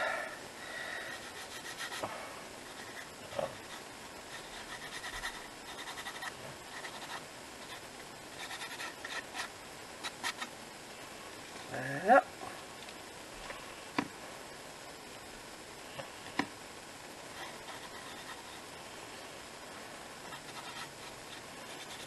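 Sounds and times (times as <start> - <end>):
fingers rubbing paper card: 1.1 - 10.5, 17.3 - 18.6, 20.3 - 22.0.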